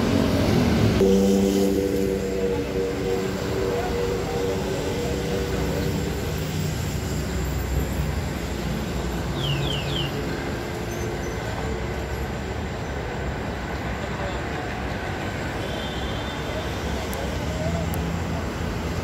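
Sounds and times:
diesel machinery rumbling: 0.0 - 9.4.

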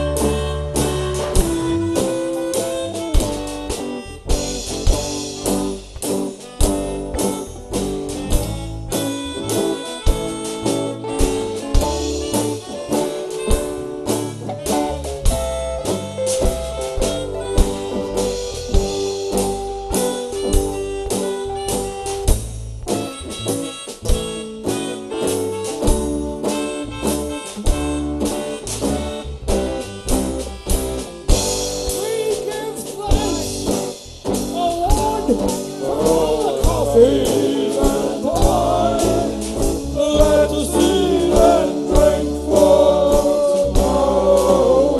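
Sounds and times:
acoustic guitar strumming: 0.0 - 44.9
drum kit beat: 0.0 - 44.9
live band music: 0.0 - 44.9
person singing wavering: 34.6 - 44.9.

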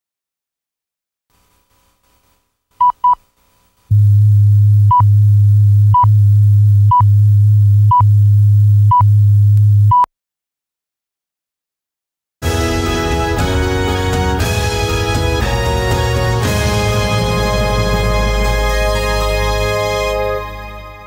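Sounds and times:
loud low hum: 3.9 - 9.9, 13.4 - 21.0.

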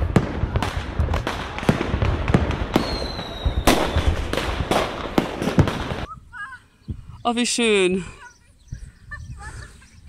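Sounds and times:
fireworks bangs and crackling pops: 0.0 - 6.2
firework whistle: 2.8 - 4.2.

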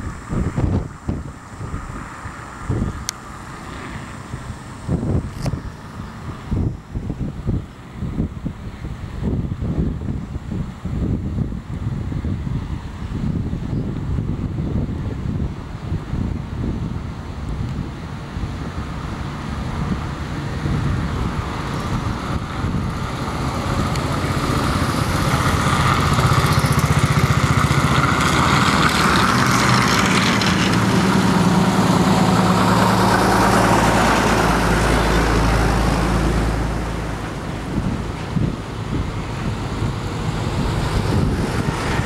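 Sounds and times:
motorcycles passing: 0.0 - 7.6, 17.8 - 42.0
tracked vehicle passing: 0.0 - 9.4, 15.2 - 42.0
deep truck engine rumble: 0.0 - 42.0.

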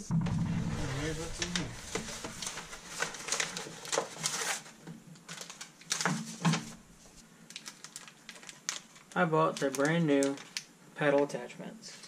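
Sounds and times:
plastic packaging crinkling: 1.0 - 10.7
paper envelope rustling: 1.2 - 10.6.

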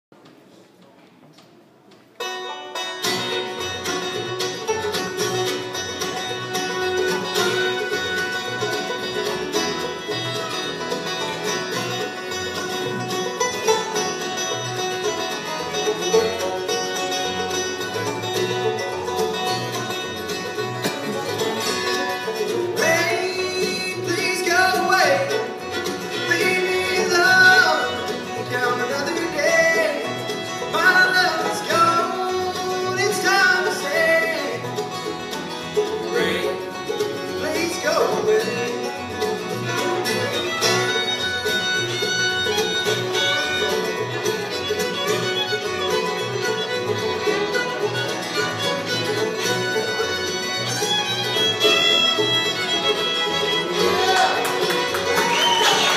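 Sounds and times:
bluegrass band playing: 2.0 - 55.9
person singing: 22.8 - 25.4, 26.0 - 34.7, 36.0 - 39.0.

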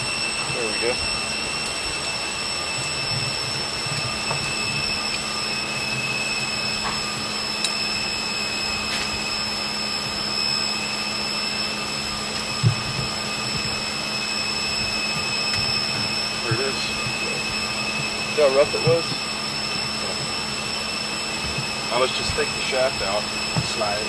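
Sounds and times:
ship engine room machinery roar: 0.0 - 24.0
thin steady whines: 0.0 - 24.0.

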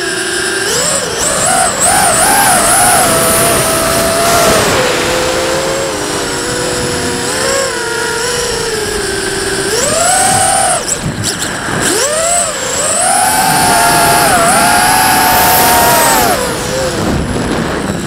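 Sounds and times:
drone motors whining: 0.0 - 18.0
wind rush: 0.6 - 18.0.

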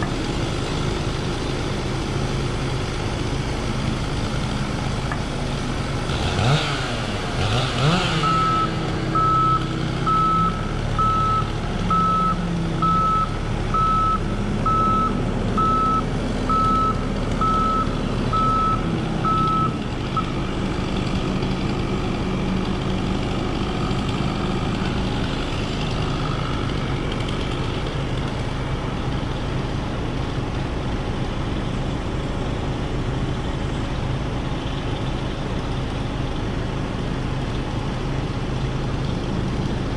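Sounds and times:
engine running: 0.0 - 39.9
vehicle reversing alarm beeping: 7.9 - 20.4.

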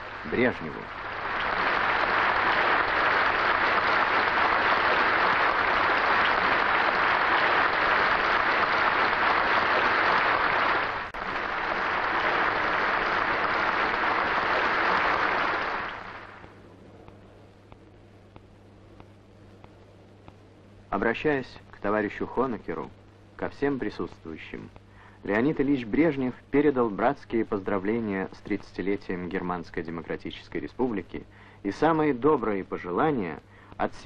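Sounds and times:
audience applauding: 0.0 - 16.5.

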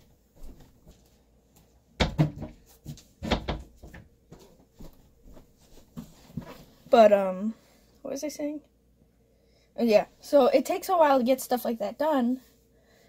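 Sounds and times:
small clunks and rustling: 0.4 - 6.8.

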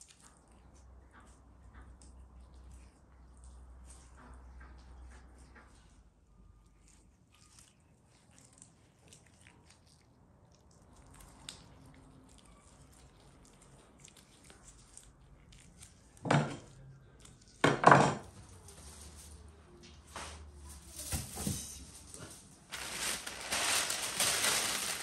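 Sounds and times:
faint rustles and small clicks: 18.4 - 25.0.

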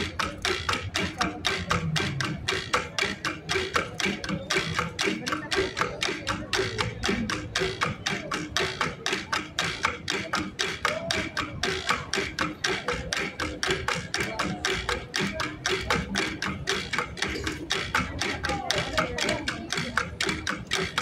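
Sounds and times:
percussion ensemble of gongs and drums: 0.0 - 21.0.

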